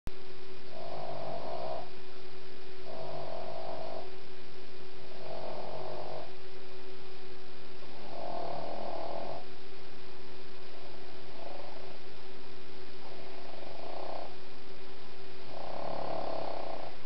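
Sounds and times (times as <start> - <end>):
electrical hum: 0.1 - 17.0
dog snoring: 0.7 - 2.0, 2.8 - 4.2, 5.0 - 6.5, 7.8 - 9.5, 10.6 - 12.2, 13.0 - 14.5, 15.4 - 17.0.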